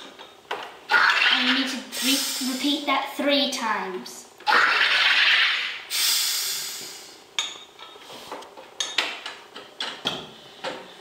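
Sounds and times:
drink maker gas hiss: 1.9 - 2.8, 4.8 - 7.3.

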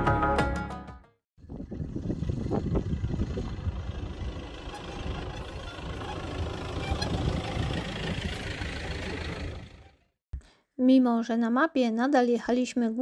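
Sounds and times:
truck driving on gravel: 1.7 - 10.0.

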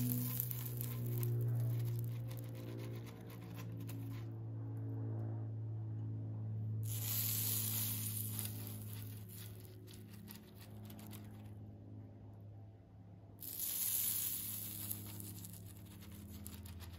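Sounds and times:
waffle iron sizzling: 0.0 - 2.1, 6.8 - 9.7, 13.4 - 16.6
steady low hum: 0.0 - 16.9.

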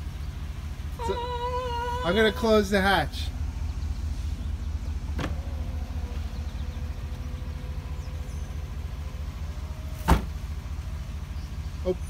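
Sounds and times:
low rumble: 0.0 - 11.8
liftgate motor hum: 0.0 - 11.9
liftgate latching thunk: 5.2 - 5.5, 10.0 - 10.4.

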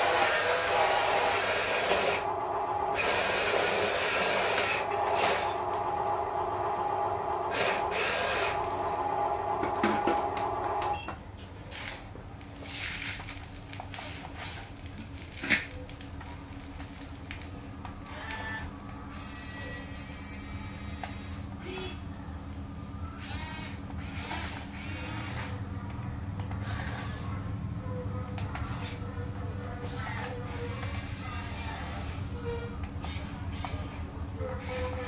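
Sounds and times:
toy truck electric motor whining: 0.0 - 10.9, 18.0 - 21.8, 23.2 - 25.7, 26.4 - 27.5, 28.6 - 29.0, 29.8 - 35.0
toy excavator motors whirring: 0.0 - 11.0, 11.6 - 22.0, 23.1 - 35.0.

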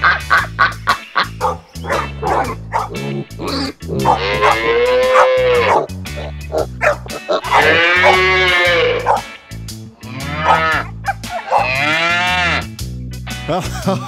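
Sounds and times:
playful background music: 0.0 - 14.0
long rising and falling animal call: 3.7 - 9.2, 10.1 - 12.1.

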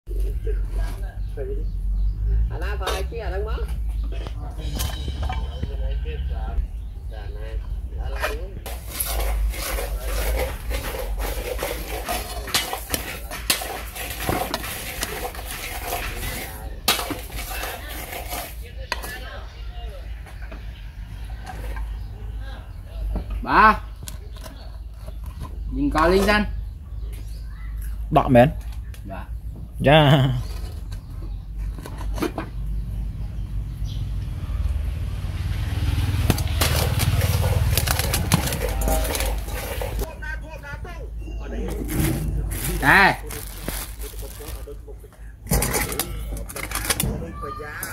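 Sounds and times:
metal spoon scraping rice in pot: 8.1 - 19.1, 36.3 - 40.1.

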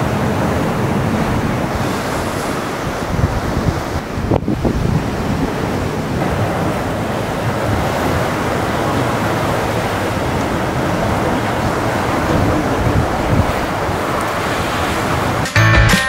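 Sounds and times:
wind buffeting microphone: 0.0 - 15.4.

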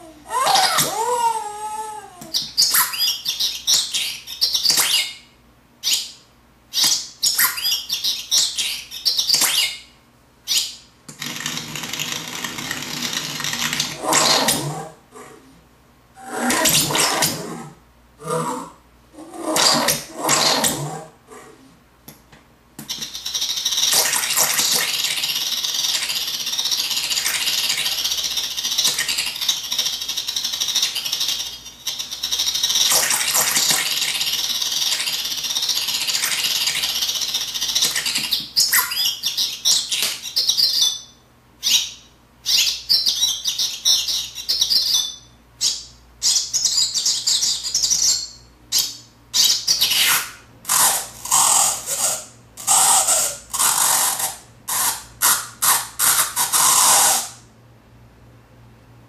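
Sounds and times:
glitchy electronic bird chirps: 2.3 - 14.6, 22.9 - 57.4.

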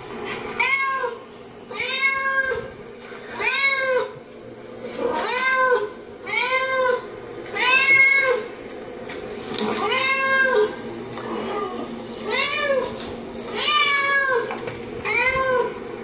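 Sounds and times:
cat meowing on television: 0.6 - 2.7, 3.4 - 4.2, 5.1 - 7.0, 7.6 - 8.5, 9.7 - 10.8, 13.6 - 15.8.

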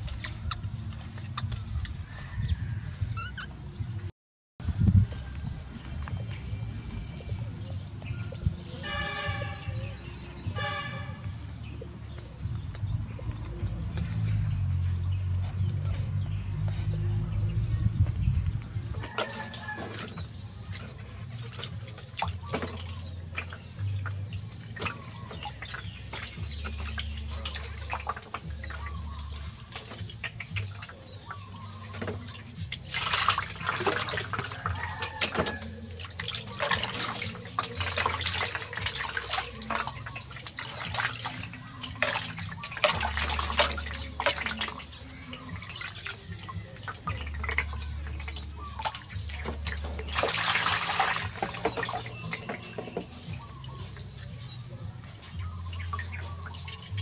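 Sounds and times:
water splashing in metal basin: 0.0 - 3.4, 6.7 - 57.0
water pouring: 18.9 - 57.0.

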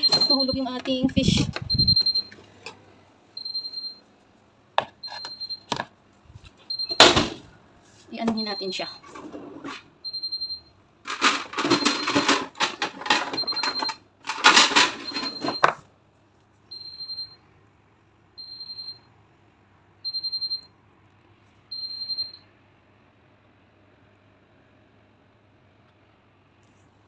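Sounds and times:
oven timer beeping: 0.0 - 4.1, 5.0 - 5.8, 6.6 - 7.2, 8.3 - 9.0, 10.0 - 10.8, 13.2 - 14.0, 15.0 - 15.8, 16.7 - 17.4, 18.4 - 19.1, 20.0 - 20.7, 21.7 - 22.5.

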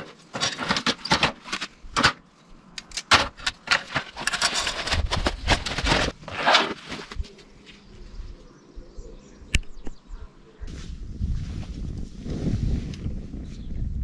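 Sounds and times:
metal barbecue parts clattering: 0.0 - 2.3, 2.9 - 6.9.

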